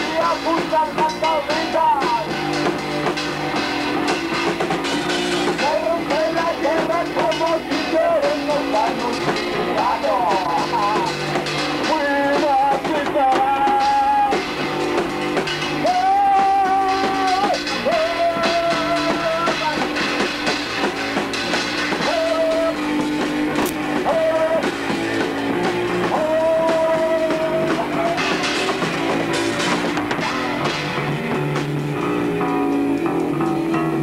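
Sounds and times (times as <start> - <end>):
person singing: 0.0 - 2.4, 5.6 - 11.2, 11.8 - 14.5, 15.8 - 20.0, 21.9 - 24.9, 25.9 - 28.8
bass guitar: 0.0 - 34.0
drum kit: 0.0 - 34.0
electric guitar: 0.0 - 34.0.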